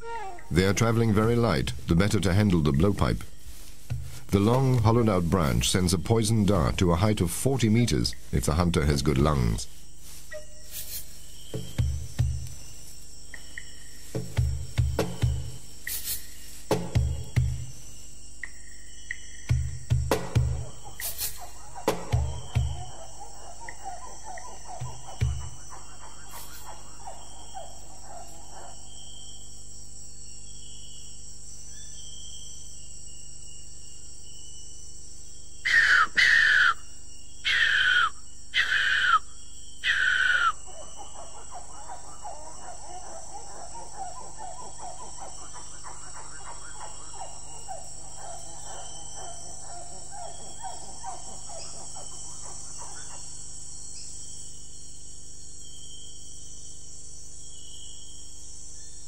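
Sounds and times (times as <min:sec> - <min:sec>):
insects buzzing: 0:00.0 - 0:59.0
loud calls falling in pitch: 0:35.7 - 0:36.8, 0:37.5 - 0:39.2, 0:39.8 - 0:40.6.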